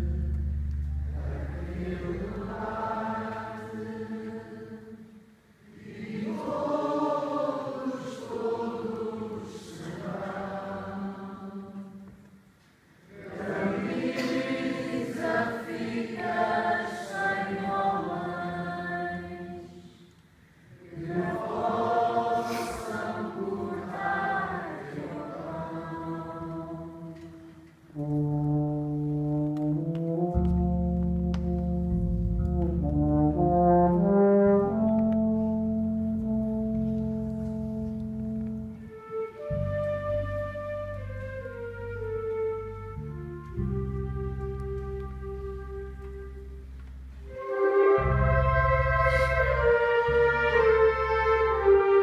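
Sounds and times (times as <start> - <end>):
group of voices singing: 1.1 - 12.0, 13.1 - 20.0, 20.7 - 27.3
wind band playing brass chords: 27.9 - 52.0.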